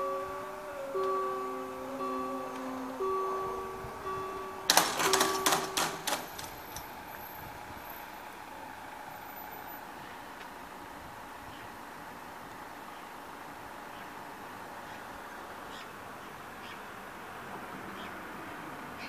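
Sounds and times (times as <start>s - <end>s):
level crossing warning bells: 0.0s - 8.6s.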